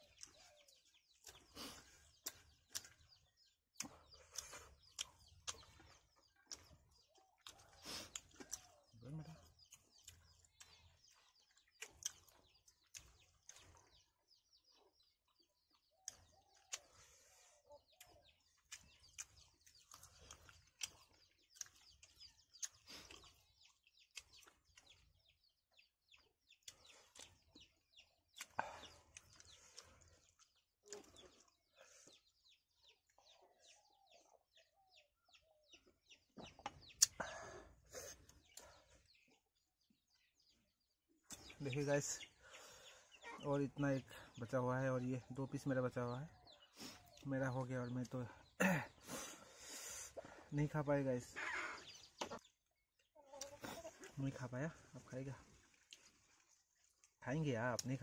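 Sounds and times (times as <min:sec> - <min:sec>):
chewing and lip smacks: 0:00.0 - 0:14.1, 0:15.7 - 0:17.1, 0:17.8 - 0:25.2, 0:26.6 - 0:31.8, 0:55.5 - 0:57.2
chickens clucking faintly: 0:00.0 - 0:58.0.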